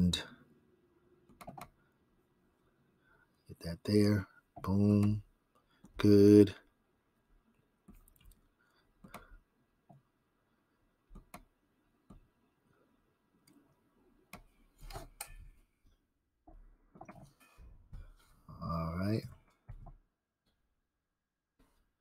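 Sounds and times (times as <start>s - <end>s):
computer mouse clicks: 1.3s - 1.8s, 11.1s - 11.5s.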